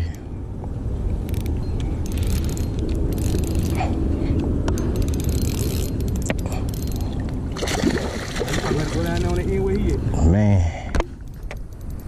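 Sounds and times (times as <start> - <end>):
fishing reel clicking and rattling: 1.2 - 7.1, 11.3 - 12.0.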